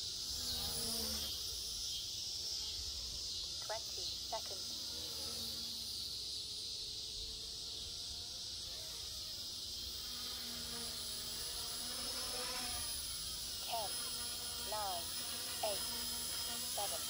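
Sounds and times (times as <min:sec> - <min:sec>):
insects droning: 0:00.0 - 0:17.0.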